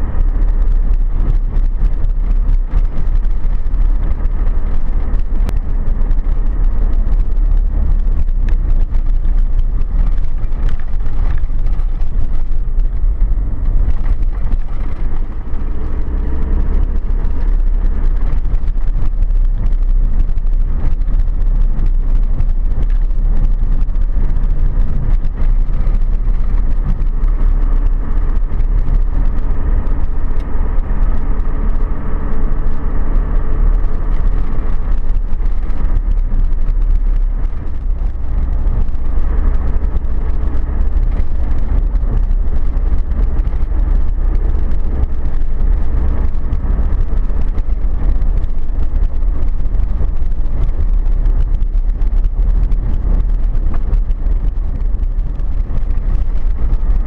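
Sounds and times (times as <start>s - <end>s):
gravel crackling under tyres: 0.0s - 57.0s
vehicle engine and tyre rumble: 0.0s - 57.0s.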